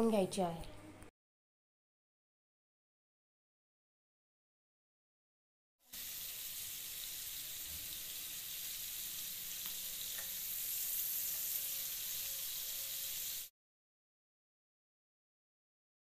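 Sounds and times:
prawns sizzling in oil: 0:05.8 - 0:13.5.

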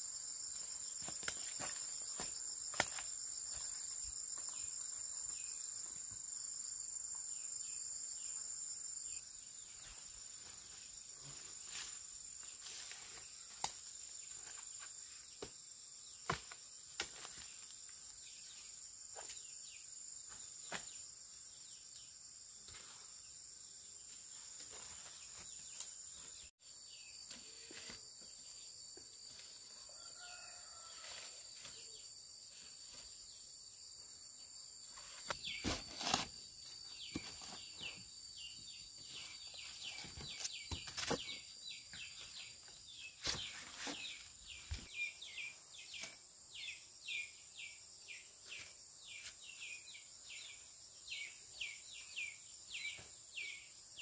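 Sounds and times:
lower insect trill: 0:00.0 - 0:54.0
bamboo shoots rustling: 0:35.0 - 0:38.0.

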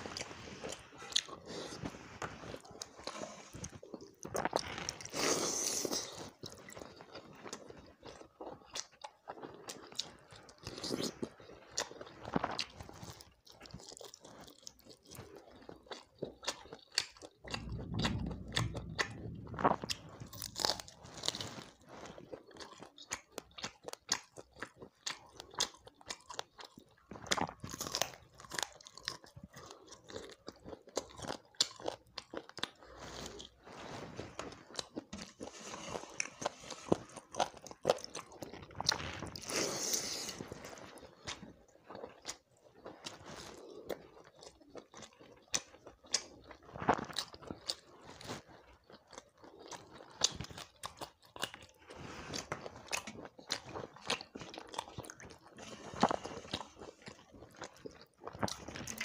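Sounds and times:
person chewing and biting: 0:00.0 - 0:33.5, 0:34.4 - 0:59.0
low rumble: 0:17.5 - 0:21.7.

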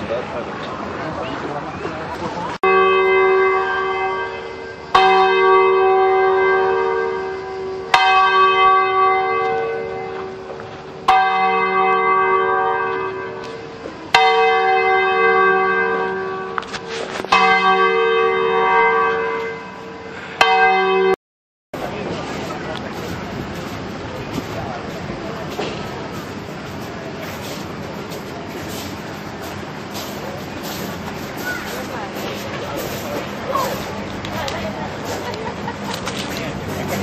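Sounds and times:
church bell tolling: 0:02.6 - 0:16.7, 0:17.3 - 0:21.2.

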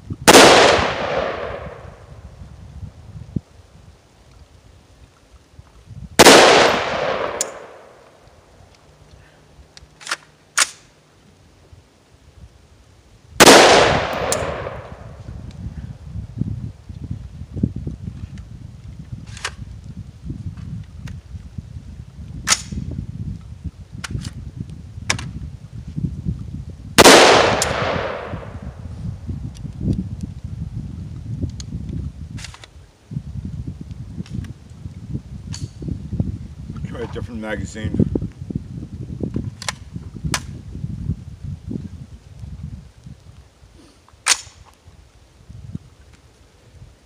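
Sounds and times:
rifle shot with echo: 0:00.3 - 0:02.0, 0:06.2 - 0:08.0, 0:13.4 - 0:15.2, 0:27.0 - 0:28.7
sharp metallic clicks: 0:07.3 - 0:07.6, 0:14.1 - 0:14.6
metallic clacks of rifle action: 0:09.8 - 0:10.8.

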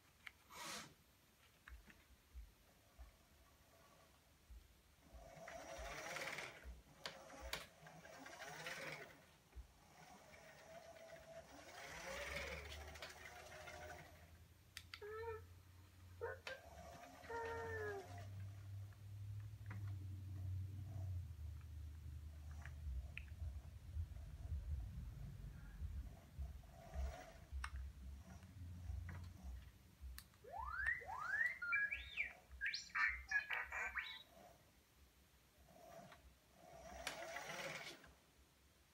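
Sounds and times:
robot drive motors whirring: 0:09.8 - 0:14.2
robot beeps and whistles: 0:30.4 - 0:34.3
warbling electronic chirp: 0:30.4 - 0:34.3.

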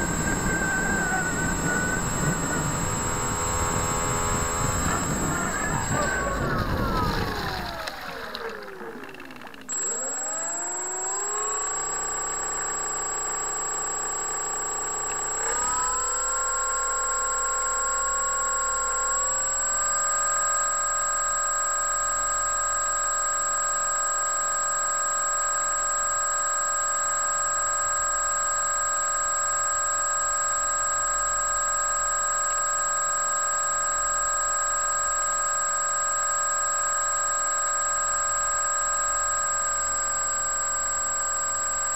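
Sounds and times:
high steady whistle: 0:00.0 - 0:08.8, 0:09.7 - 0:12.8
electric motor and propeller whining: 0:00.0 - 0:25.7.

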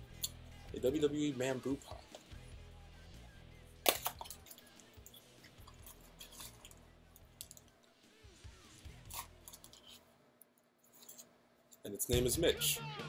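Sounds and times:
faint background music: 0:00.0 - 0:13.0
sharp click of packaging: 0:03.8 - 0:04.6.

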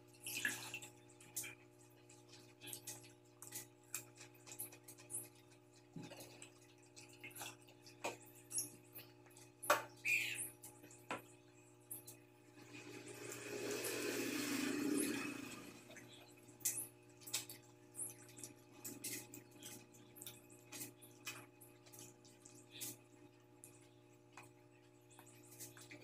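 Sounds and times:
loud slurp: 0:12.7 - 0:16.0.

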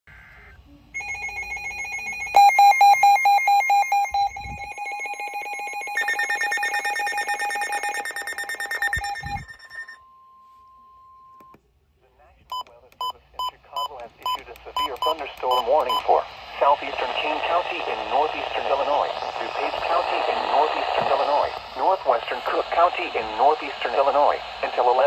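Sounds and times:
rapid electronic alarm beeping: 0:01.0 - 0:10.0, 0:12.5 - 0:16.2.

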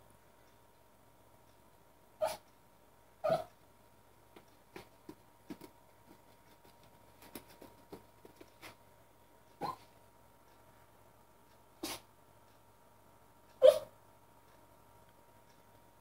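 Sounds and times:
small dog barking: 0:02.2 - 0:02.4, 0:03.2 - 0:03.5, 0:09.6 - 0:09.9, 0:13.6 - 0:13.9.

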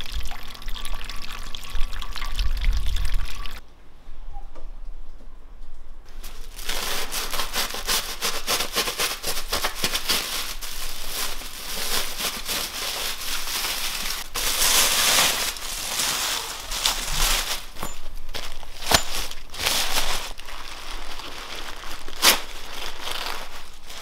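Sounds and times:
aluminium foil crinkling: 0:06.1 - 0:24.0.

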